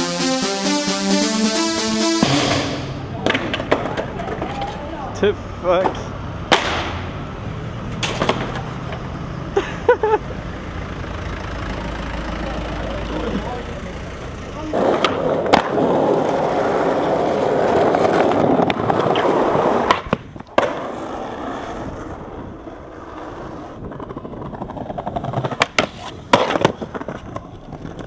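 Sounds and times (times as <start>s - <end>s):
skateboard wheels rolling: 3.0s - 28.0s
skateboard clacking on concrete: 3.2s - 5.0s, 8.0s - 9.0s, 14.7s - 22.3s, 23.0s - 28.0s.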